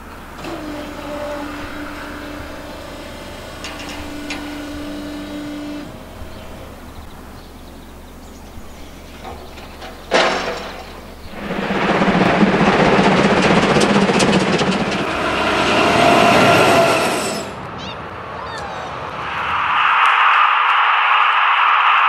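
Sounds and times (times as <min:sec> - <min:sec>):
steady hum: 0:00.0 - 0:17.6
signal arms clattering: 0:01.6 - 0:15.1.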